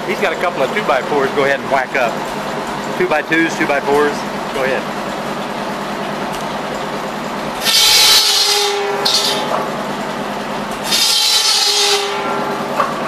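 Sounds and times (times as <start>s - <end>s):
tractor engine and spinning blade hum: 0.0s - 13.0s
buzz saw cutting wooden boards: 7.6s - 9.7s, 10.8s - 12.9s.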